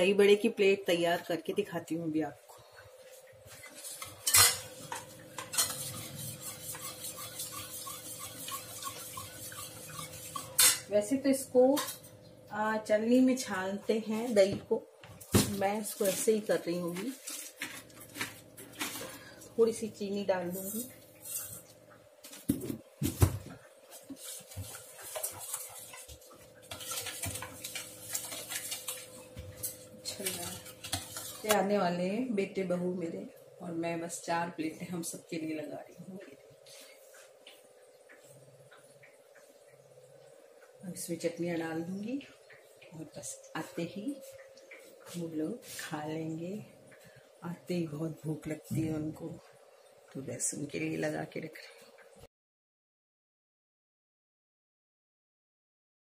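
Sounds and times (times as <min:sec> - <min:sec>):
utensil stirring and scraping bowl: 0:03.5 - 0:10.9, 0:20.5 - 0:21.7, 0:23.9 - 0:31.7.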